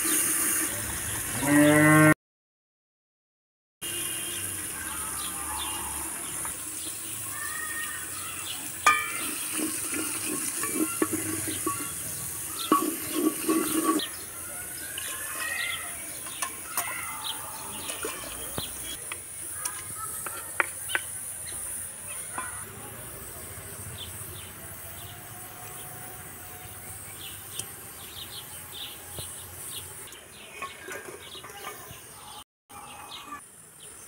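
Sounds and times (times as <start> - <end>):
cow mooing: 1.4 - 2.2, 5.3 - 6.3
steady hiss: 3.8 - 17.4, 18.5 - 30.2
birds chirping: 3.9 - 34.0
wooden spoon stirring in pot: 8.8 - 14.3, 14.9 - 20.4.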